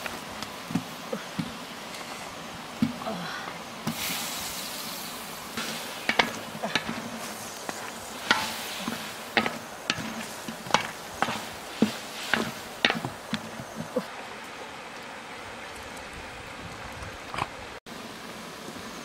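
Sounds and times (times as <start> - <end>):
food sizzling in a wok: 3.8 - 14.1
wooden spatula scraping a pan: 5.6 - 14.1.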